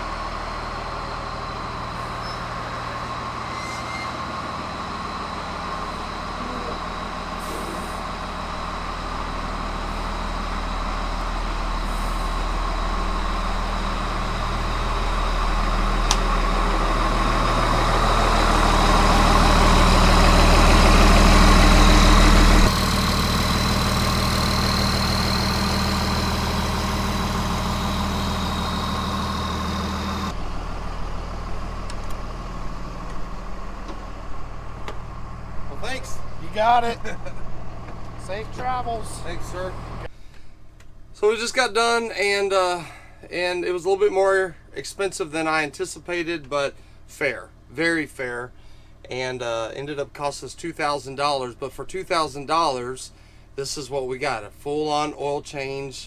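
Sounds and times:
high whine: 0.0s - 40.1s
diesel engine running: 0.0s - 56.0s.

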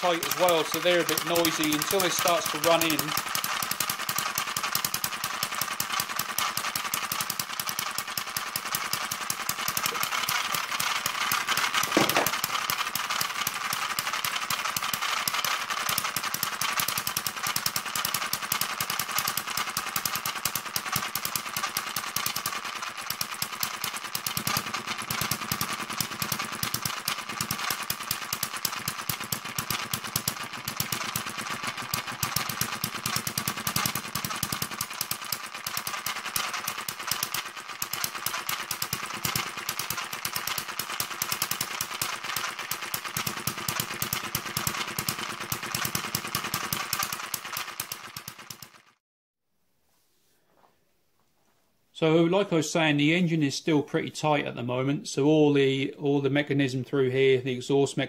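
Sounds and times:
gears clattering: 0.0s - 49.0s
small engine running fast: 0.0s - 49.0s
loud knock: 11.9s - 12.4s.

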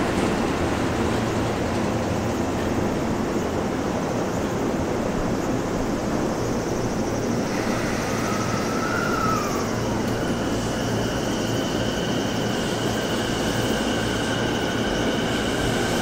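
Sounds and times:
electric train whine: 0.0s - 16.0s
train rumbling on tracks: 0.0s - 16.0s.

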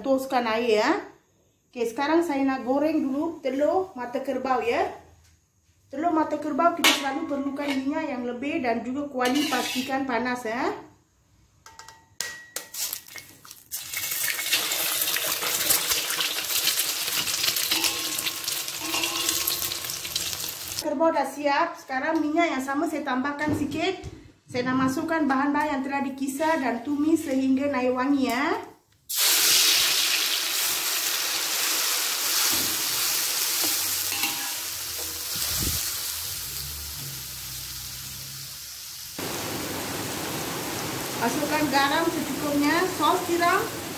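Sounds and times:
egg sizzling in hot oil: 12.8s - 20.8s, 29.1s - 43.9s.

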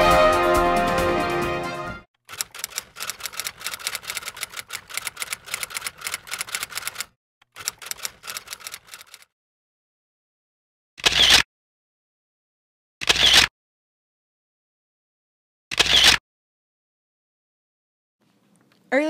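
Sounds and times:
typewriter keys clacking: 2.3s - 9.2s.

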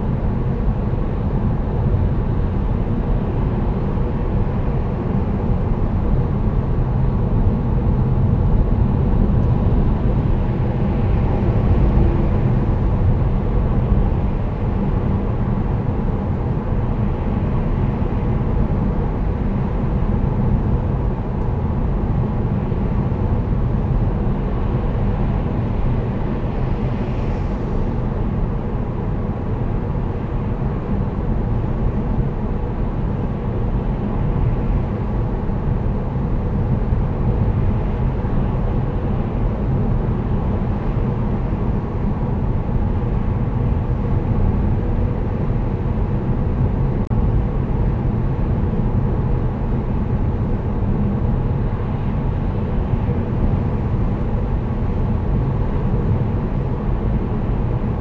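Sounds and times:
car engine hum: 0.0s - 58.0s
tyre and road noise: 7.2s - 30.7s.

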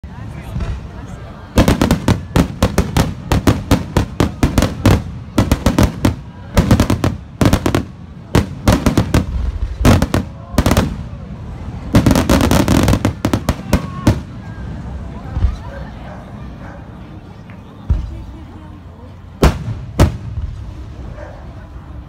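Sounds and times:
fireworks bursting: 0.3s - 15.7s, 19.4s - 21.2s.

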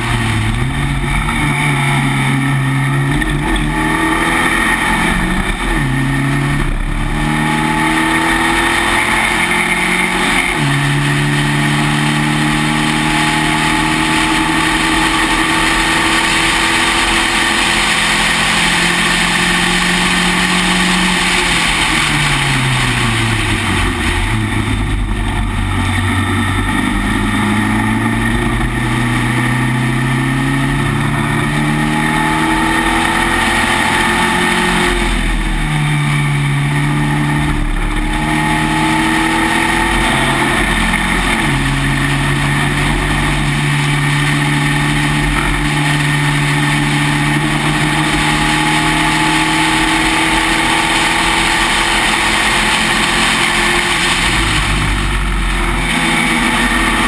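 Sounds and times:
race car engine: 0.0s - 57.0s.

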